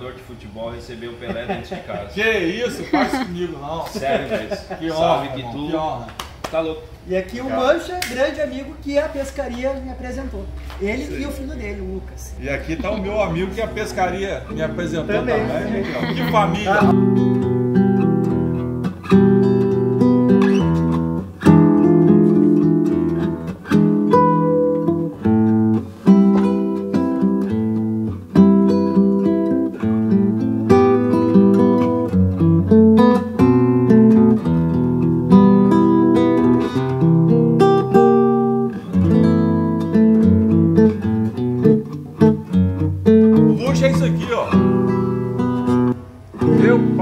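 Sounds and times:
plucked guitar chords: 12.6 - 47.0.

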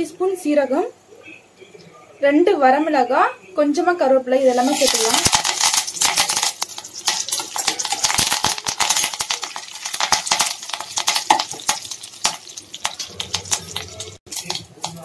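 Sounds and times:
spices sizzling: 4.4 - 15.0
seeds crackling and popping in oil: 4.5 - 15.0
spoon stirring in metal pan: 4.5 - 15.0.

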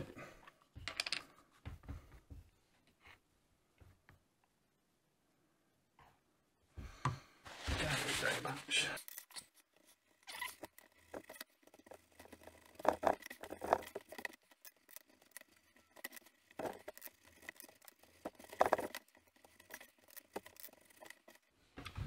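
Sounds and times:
fingertips rubbing leather: 9.0 - 21.5.

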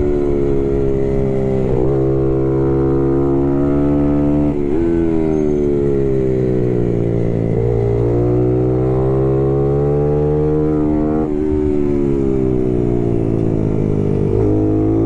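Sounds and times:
wind rush and tyre noise: 0.0 - 8.5
motorcycle engine revving: 0.0 - 15.0.

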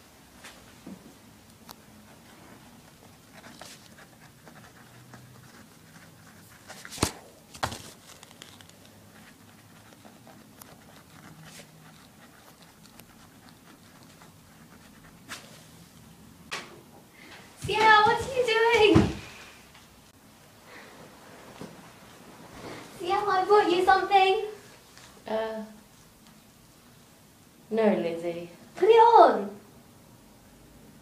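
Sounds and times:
quill pen scratching on paper: 2.1 - 7.1, 7.9 - 15.4.

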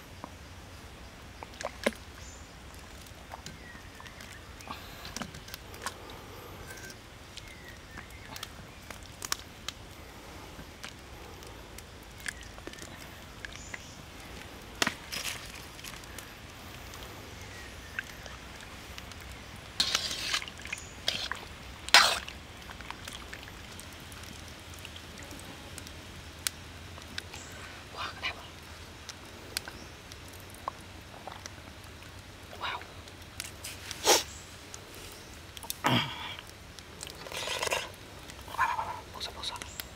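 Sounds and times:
water splashing and sloshing: 12.1 - 27.3.

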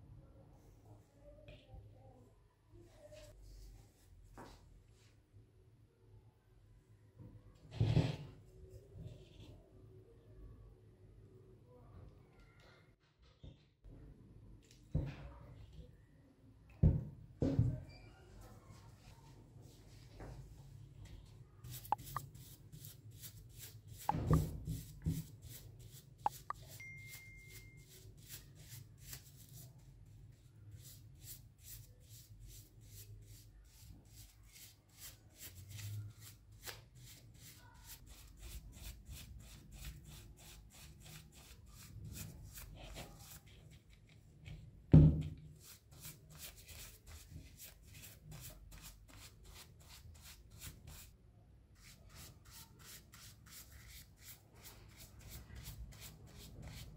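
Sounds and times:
brush scrubbing metal vase: 21.7 - 29.5.

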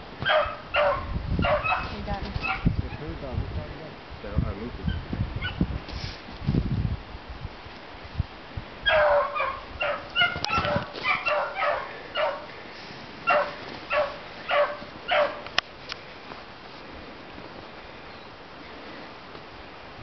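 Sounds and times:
dogs yelping barks: 0.2 - 3.0, 5.4 - 5.6, 8.8 - 12.5, 13.2 - 15.6.

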